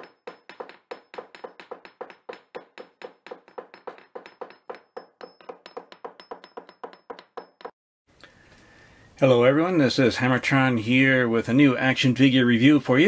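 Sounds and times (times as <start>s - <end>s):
rapid hollow tapping knocks: 0.0s - 7.8s.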